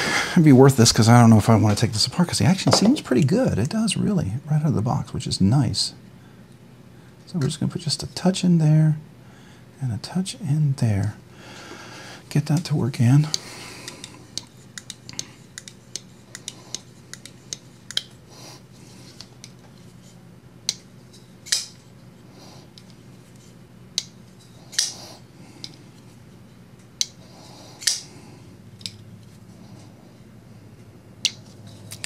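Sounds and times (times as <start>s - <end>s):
folding knife clicking open and shut: 27.8s - 28.1s.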